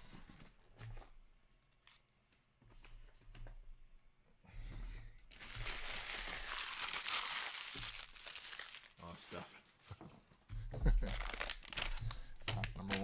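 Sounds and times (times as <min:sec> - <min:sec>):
wrapper crinkling: 0:05.3 - 0:09.9, 0:11.0 - 0:13.0.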